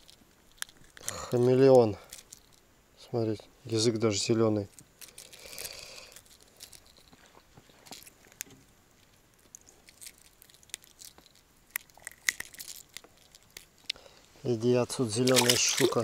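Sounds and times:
soft rustling: 3.3s - 16.0s.

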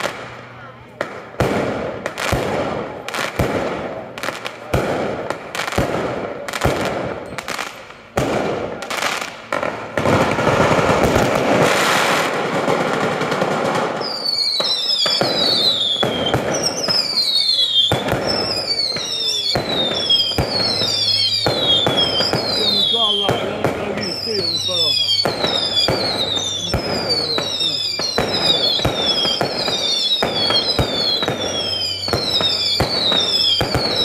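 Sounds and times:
firework bangs: 0.0s - 34.0s
rapid firework crackling: 0.0s - 34.0s
whistles falling in pitch: 14.0s - 34.0s.

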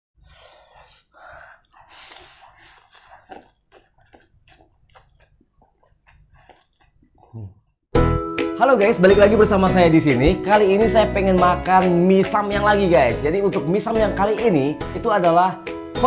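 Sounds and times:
wet chewing and mouth-smacking: 1.5s - 7.4s
man slurping noodles: 1.6s - 7.5s.

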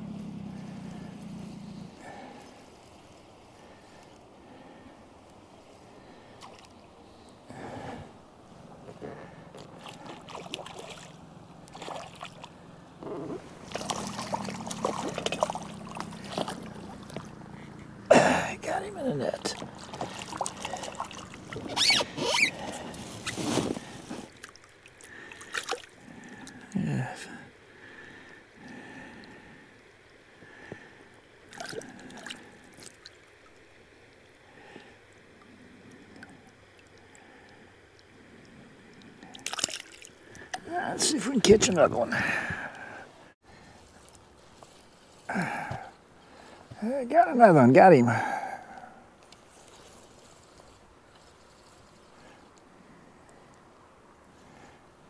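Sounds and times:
water splashing and trickling: 2.0s - 53.4s
small splashes and clicks: 5.2s - 6.8s, 8.8s - 12.6s, 13.6s - 17.9s, 19.4s - 23.2s, 24.2s - 26.8s, 30.6s - 40.7s, 43.6s - 46.8s, 48.7s - 53.6s.

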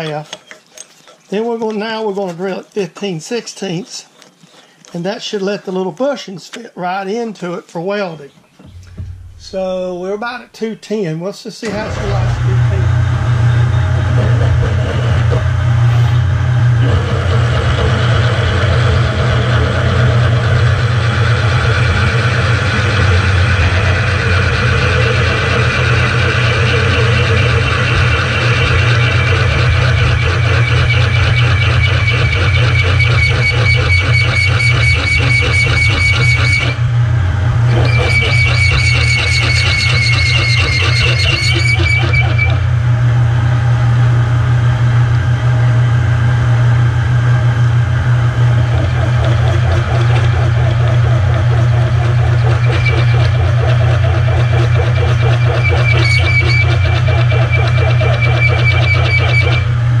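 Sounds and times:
drill squealing chatter in metal: 11.6s - 36.9s, 37.7s - 42.8s, 48.4s - 59.9s
milling machine motor hum: 11.6s - 60.0s.

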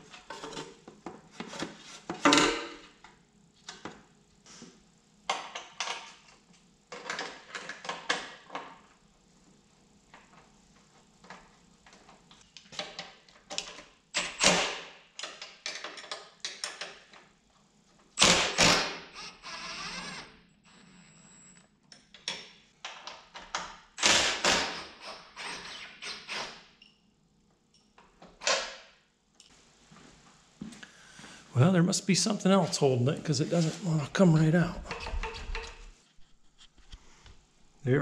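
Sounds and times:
impact driver bursts: 18.2s - 21.5s, 24.0s - 26.6s.

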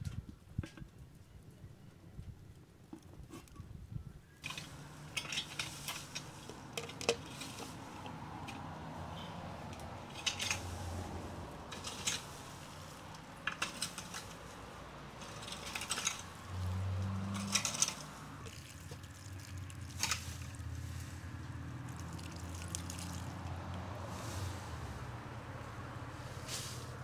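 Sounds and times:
water trickling from jug: 18.4s - 20.7s, 21.8s - 23.8s.

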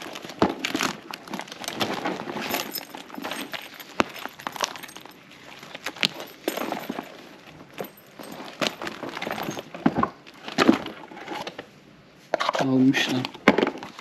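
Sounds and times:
metal chain straps clinking: 0.0s - 9.9s
bags rustling and bumping: 0.0s - 11.6s.

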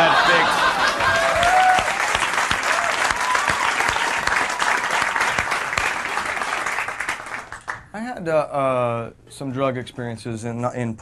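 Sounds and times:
audience laughter: 0.0s - 1.4s
audience clapping: 0.0s - 7.9s.

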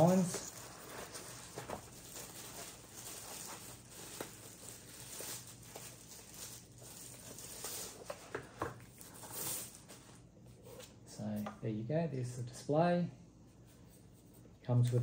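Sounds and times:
packaging rustling: 0.0s - 10.3s.

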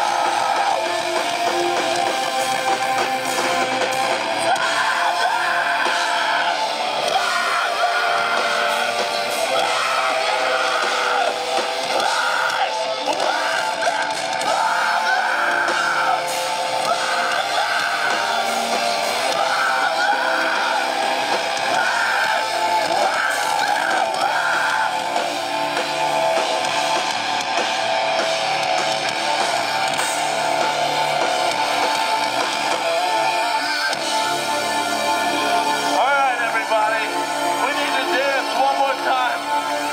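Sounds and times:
bass guitar: 0.0s - 39.9s
distorted electric guitars: 0.0s - 39.9s
drums: 0.0s - 39.9s.

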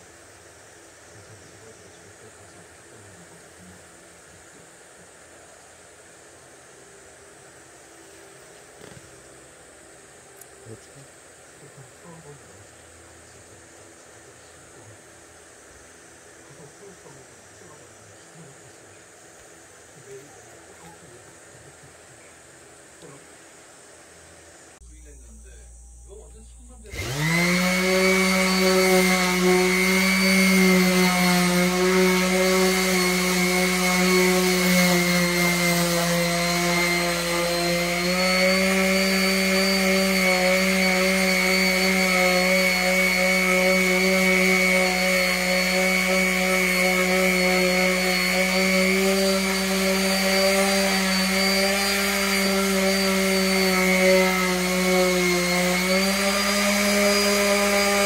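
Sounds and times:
orbital sander on wood: 26.9s - 58.0s.

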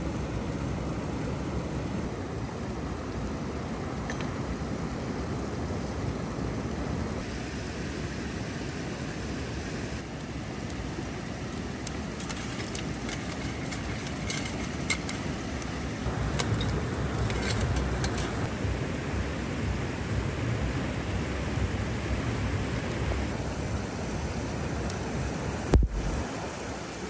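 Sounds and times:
hot charcoal crackling and spitting: 10.0s - 18.5s.

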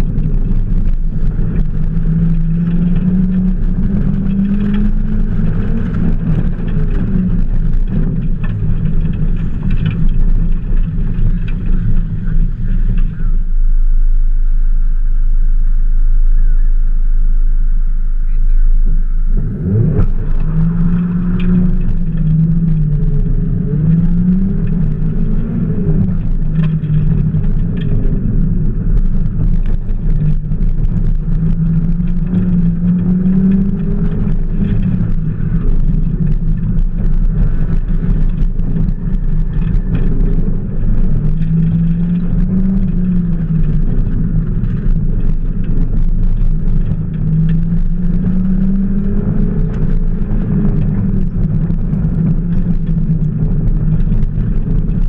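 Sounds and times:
car engine revving hard: 0.0s - 13.3s, 18.5s - 55.0s
steady low rumble: 0.0s - 55.0s.

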